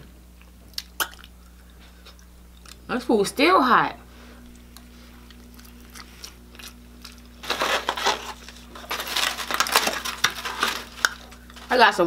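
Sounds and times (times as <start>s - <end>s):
foam box creaking and crackling: 7.4s - 11.8s.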